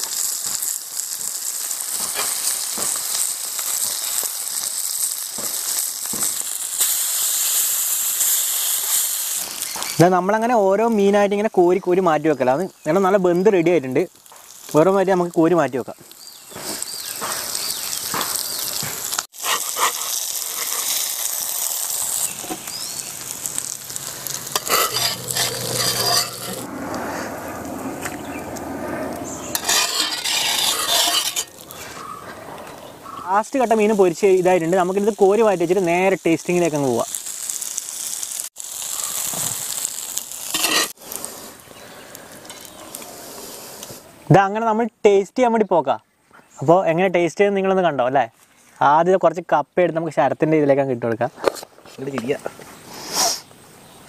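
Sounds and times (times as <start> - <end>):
fish sizzling in hot oil: 0.0 - 10.1, 12.4 - 26.7, 29.5 - 31.8, 33.5 - 43.8
metal spatula scraping pan: 19.4 - 21.1, 24.5 - 26.7, 29.5 - 31.6, 40.5 - 41.0.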